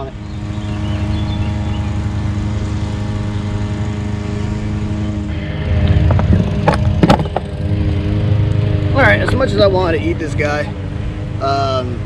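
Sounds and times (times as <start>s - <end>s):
engine running with low hum: 0.0s - 12.0s
sharp knocks and clicks: 5.8s - 7.6s.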